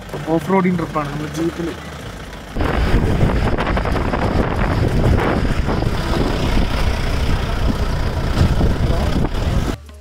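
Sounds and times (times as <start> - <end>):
wind buffeting microphone: 2.6 - 9.8.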